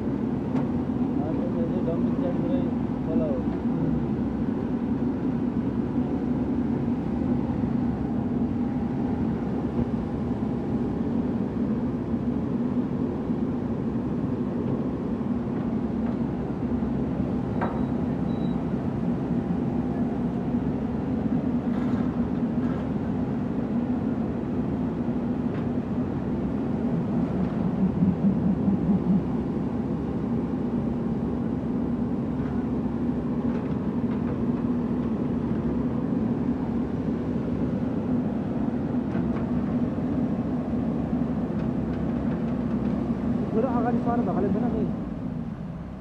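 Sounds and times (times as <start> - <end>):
heavy diesel engine running: 0.1 - 46.0.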